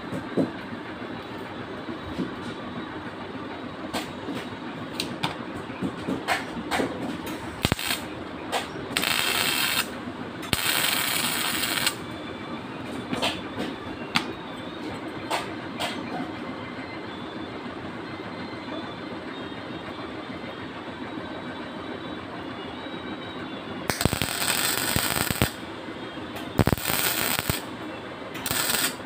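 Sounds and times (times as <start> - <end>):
arc welding hiss: 7.6 - 8.1, 9.0 - 9.9, 10.5 - 12.0, 23.9 - 25.6, 26.6 - 27.7, 28.4 - 29.0.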